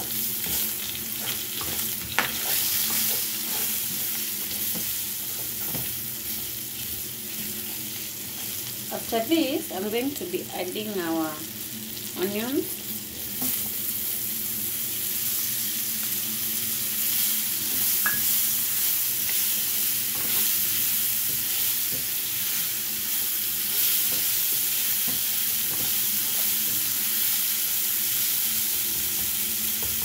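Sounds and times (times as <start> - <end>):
beef and onions sizzling in oil: 0.0 - 30.0
spatula scraping and tapping pan: 0.1 - 8.6, 17.7 - 18.4, 19.2 - 22.7.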